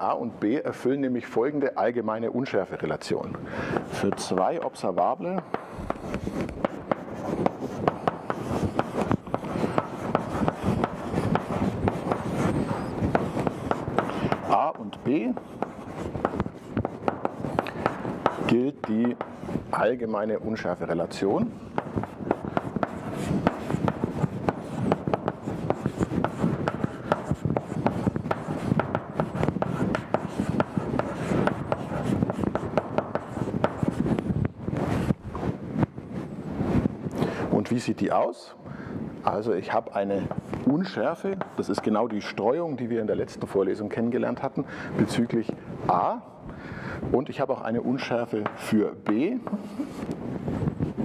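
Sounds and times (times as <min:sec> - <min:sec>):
chalk writing on a blackboard: 0:03.0 - 0:36.9, 0:40.0 - 0:42.4.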